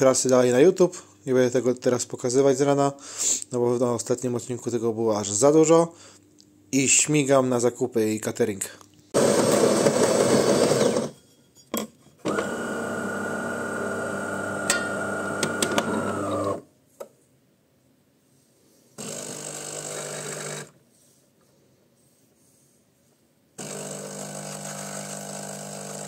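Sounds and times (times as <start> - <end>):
coffee machine motor whining: 9.2 - 11.1, 12.2 - 16.7, 19.0 - 20.8, 23.6 - 26.0.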